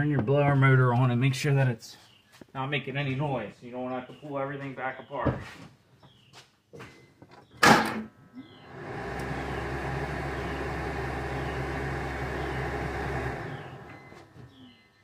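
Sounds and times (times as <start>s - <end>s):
blower motor running: 8.6s - 14.6s.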